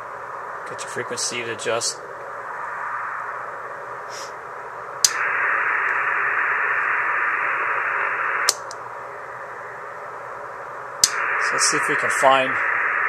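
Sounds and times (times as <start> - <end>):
radio receiver hiss: 0.0 - 13.0
switch clicks: 5.0 - 5.2, 8.5 - 8.8.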